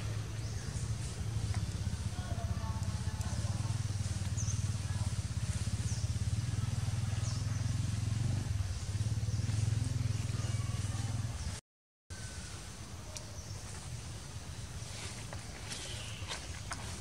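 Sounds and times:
small engine running: 0.0 - 11.6.

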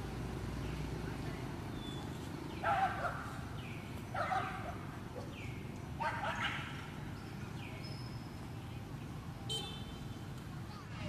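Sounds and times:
dog barking: 2.6 - 3.4, 4.2 - 5.4, 6.0 - 6.7.

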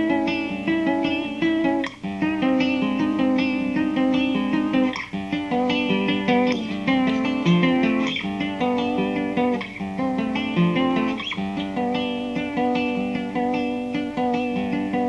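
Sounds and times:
acoustic plucked strings: 0.0 - 15.0.

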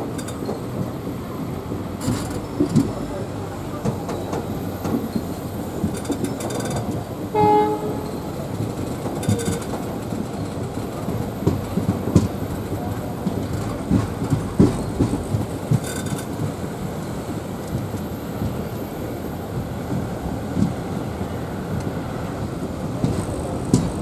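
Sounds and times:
train coaches rumbling: 0.0 - 24.0
wheel clicks over rail joints: 2.0 - 7.1, 7.8 - 16.7
locomotive horn blast: 7.3 - 8.3.

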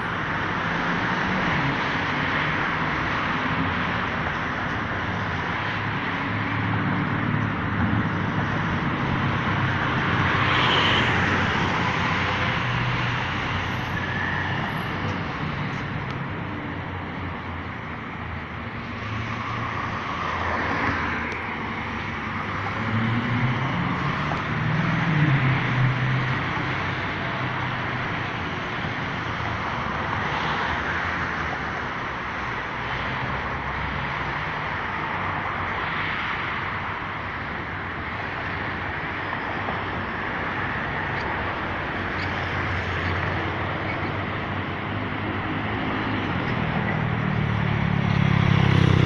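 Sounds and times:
road traffic noise: 0.0 - 49.0
heavy vehicle engine passing: 40.0 - 49.0.

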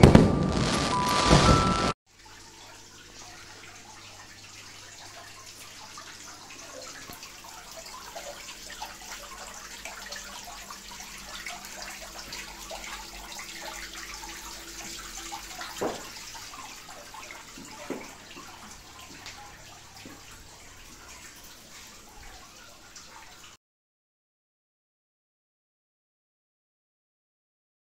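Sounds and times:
loud water splashes: 0.0 - 2.0
water trickling and splashing: 0.6 - 23.6.

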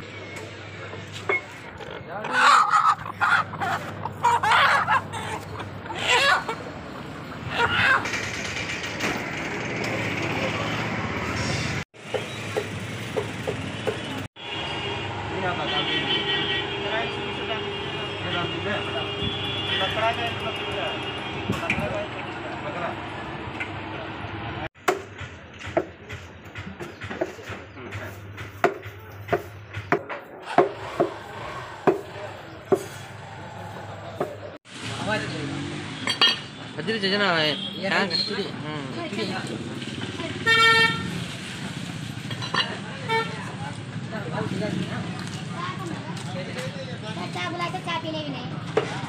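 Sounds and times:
street traffic: 0.0 - 49.0
chickens calling: 1.7 - 8.2.

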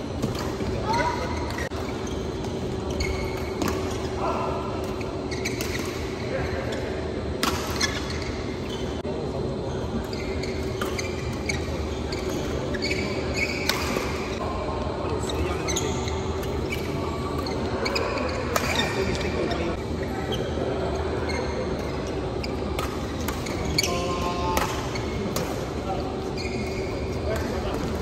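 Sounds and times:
shoe squeaks on court: 0.8 - 4.1, 5.1 - 5.9, 10.1 - 14.4, 26.3 - 27.4.

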